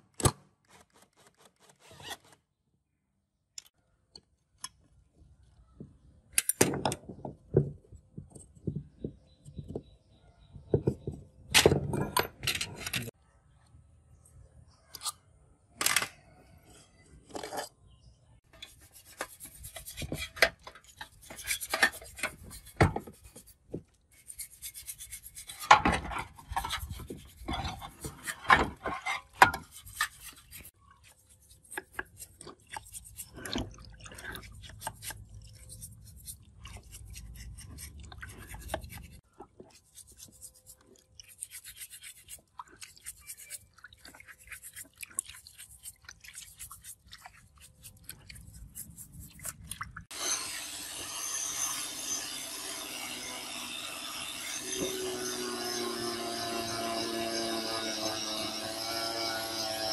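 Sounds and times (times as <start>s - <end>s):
stiff brush scrubbing metal: 18.5s - 53.5s.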